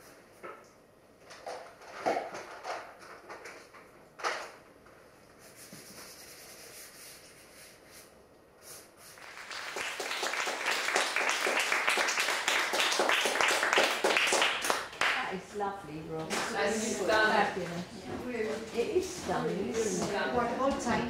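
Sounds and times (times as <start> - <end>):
audience applauding: 9.2 - 15.6.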